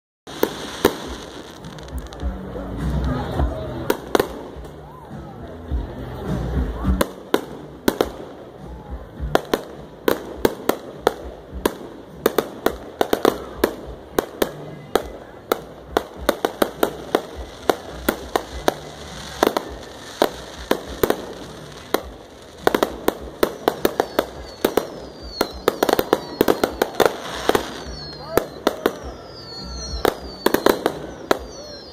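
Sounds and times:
firework bangs and crackles: 0:00.3 - 0:31.9
falling firework whistles: 0:16.2 - 0:31.9.

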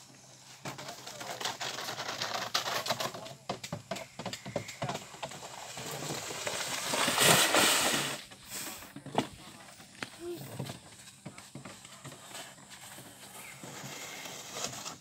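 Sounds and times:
plastic sled scraping on turf: 0:04.8 - 0:15.0.

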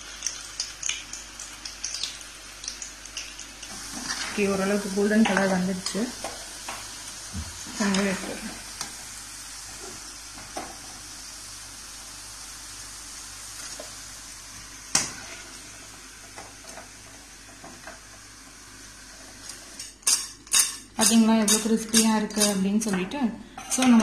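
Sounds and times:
deep-frying sizzle in oil: 0:00.0 - 0:22.6.

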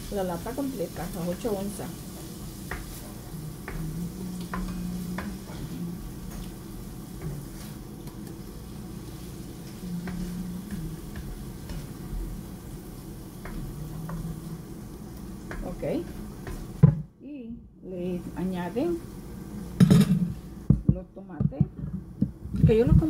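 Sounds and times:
sauce sizzling in a pot: 0:00.0 - 0:16.9
low steady hum: 0:00.0 - 0:23.0.

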